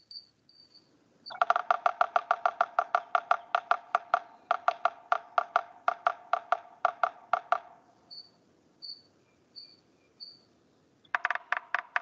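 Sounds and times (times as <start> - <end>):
woodpecker drumming on wood: 1.3 - 7.9, 11.0 - 12.0.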